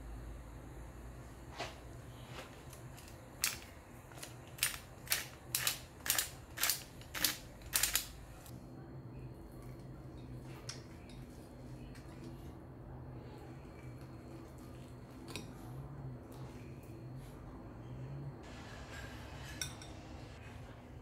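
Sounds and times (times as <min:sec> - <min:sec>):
pepper grinder crunching clicks: 0:03.0 - 0:08.1.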